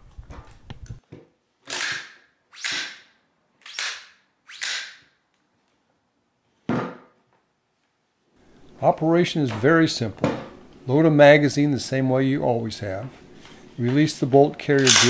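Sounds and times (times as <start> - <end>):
sharp metal clack: 14.8 - 15.0.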